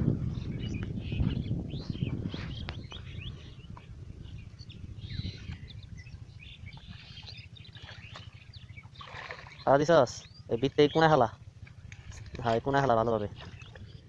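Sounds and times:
low rumble: 0.0 - 14.0
small birds chirping: 0.2 - 14.0
hands squelching in mud and water: 7.0 - 9.7, 11.6 - 14.0.

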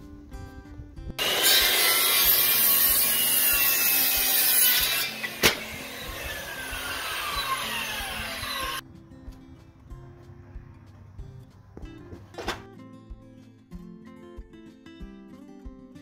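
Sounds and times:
circular saw cutting wood: 1.2 - 8.8
saw blade spinning down: 1.2 - 8.8
sharp snap of wood: 5.4 - 5.8.

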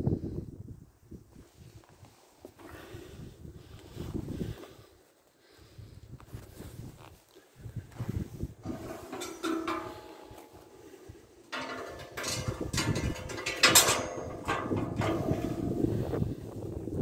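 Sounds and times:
metal grill grate clanking: 8.6 - 10.7, 11.5 - 16.1.

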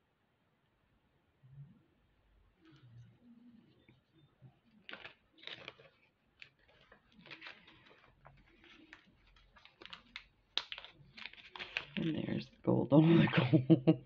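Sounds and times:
plastic bags crinkling: 4.7 - 13.2.

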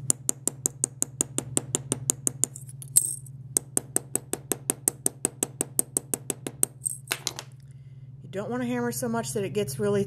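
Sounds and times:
hammer tapping metal rivet: 0.0 - 7.4.

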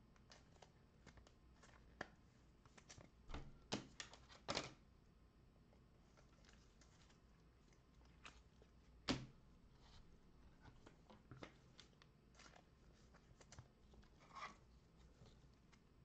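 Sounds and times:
soft rustle: 6.0 - 9.0
handling trading cards: 7.9 - 15.9.

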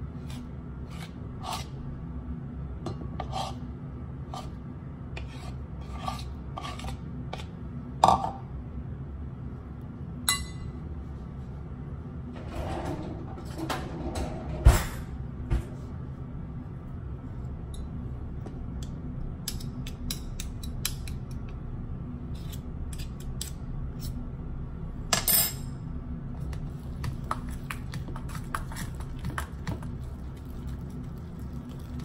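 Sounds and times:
fork scraping metal bowl: 0.2 - 1.8, 3.2 - 3.6, 5.2 - 7.5.

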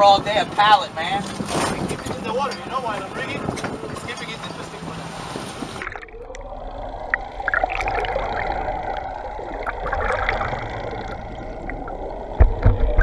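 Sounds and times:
low hum: 5.0 - 13.0
underwater rushing water with gurgles: 5.0 - 13.0.

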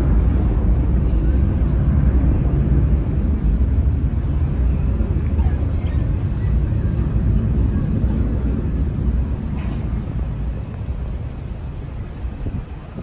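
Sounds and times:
jet engines rumbling: 0.0 - 13.0.

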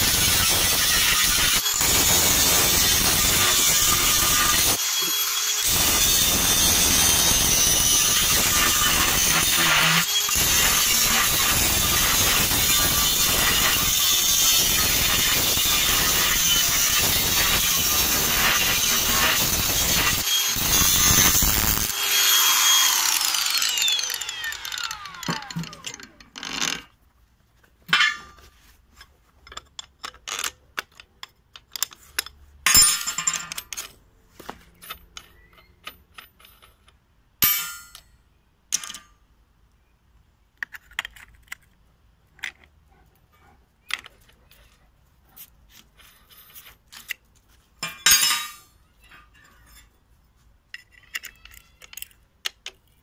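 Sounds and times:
angle grinder cutting steel: 0.0 - 26.9
grinder disc spinning down: 0.1 - 26.9
clicks and knocks of handling: 27.6 - 32.4, 40.5 - 42.8, 50.7 - 53.0.

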